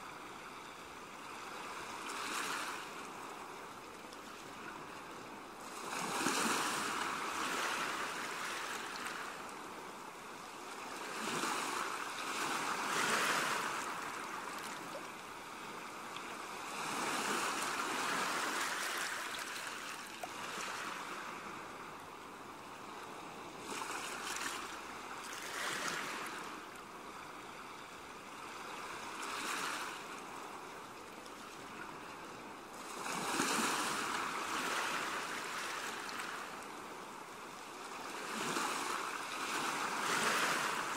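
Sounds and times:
waves washing in: 4.4s - 27.1s, 31.6s - 40.9s.

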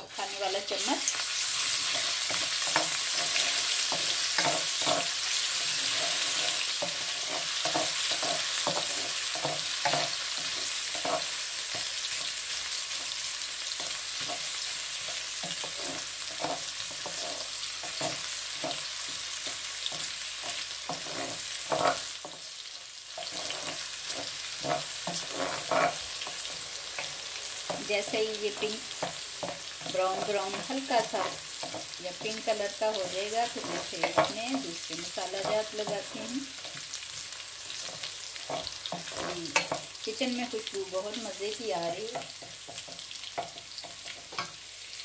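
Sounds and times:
paste sizzling in hot oil: 0.0s - 45.0s
wooden spatula scraping pan: 23.2s - 36.8s.

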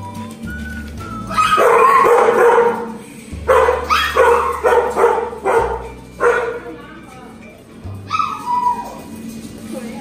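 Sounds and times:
dog barking: 1.4s - 6.7s.

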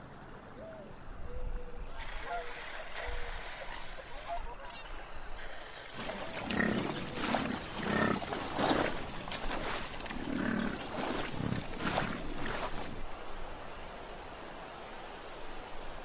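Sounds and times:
water splashing: 5.5s - 13.3s
bison grunting: 6.0s - 13.0s.

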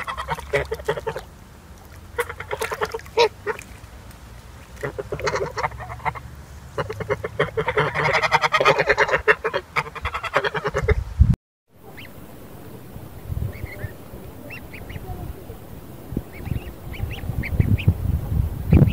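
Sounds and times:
geese honking: 0.0s - 1.3s, 2.1s - 3.7s, 4.8s - 11.0s, 11.8s - 18.9s.

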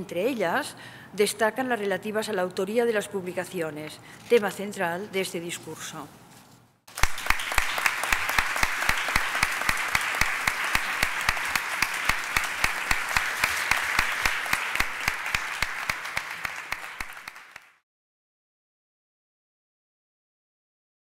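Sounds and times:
audience applauding: 6.9s - 17.8s
nearby hands clapping steadily: 6.9s - 17.8s.

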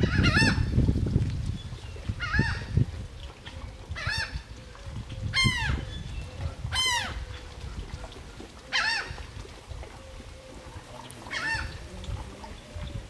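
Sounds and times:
bird calling: 3.4s - 13.0s.

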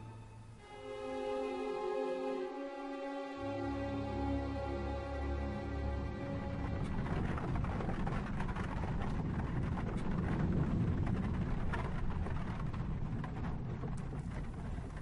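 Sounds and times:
carriage wheels rumbling: 3.6s - 15.0s
rattles and clicks: 6.3s - 15.0s.

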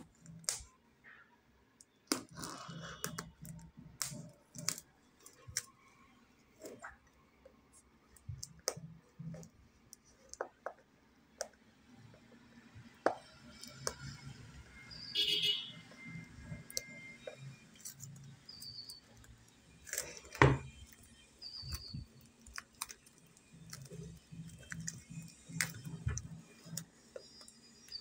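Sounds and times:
plastic film crinkling: 16.8s - 28.0s.

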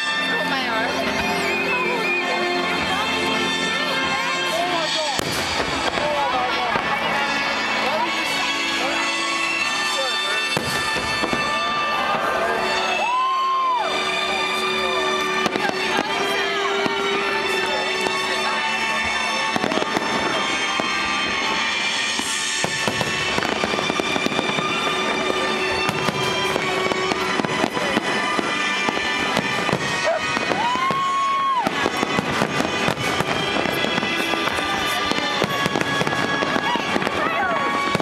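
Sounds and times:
firework whistle: 0.0s - 38.0s
fireworks bangs and crackling: 0.0s - 38.0s
music: 0.0s - 38.0s.

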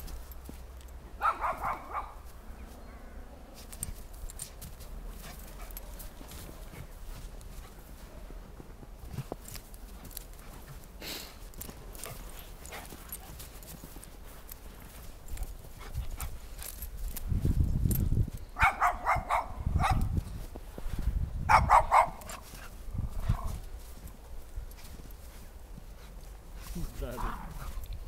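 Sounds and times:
dogs barking: 1.2s - 2.3s, 18.6s - 20.1s, 21.5s - 22.4s.

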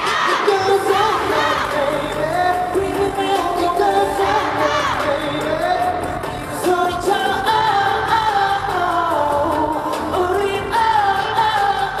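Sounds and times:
male group singing: 0.0s - 12.0s
pop backing track: 0.0s - 12.0s.

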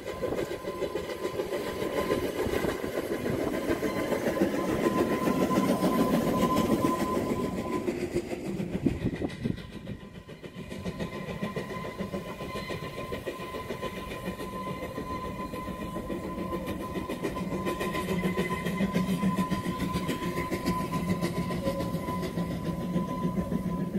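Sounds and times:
steam locomotive running: 0.0s - 23.9s
wheels clattering on rails: 0.0s - 23.9s.

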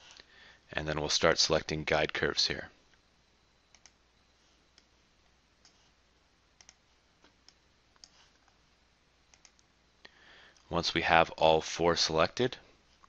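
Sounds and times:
faint computer mouse clicks: 3.7s - 4.0s, 6.6s - 8.6s, 9.3s - 9.7s.

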